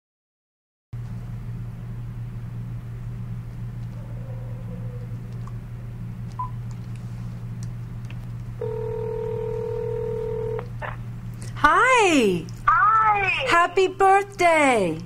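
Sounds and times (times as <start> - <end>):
low hum: 1.0 - 15.0
phone ringback tone: 8.6 - 10.7.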